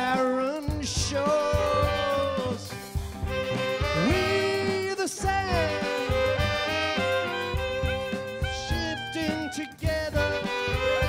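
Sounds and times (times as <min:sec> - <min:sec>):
drums: 0:00.0 - 0:11.0
upright bass: 0:00.0 - 0:11.0
clarinet: 0:01.1 - 0:02.6, 0:03.3 - 0:11.0
fiddle: 0:03.2 - 0:11.0
saxophones: 0:03.3 - 0:11.0.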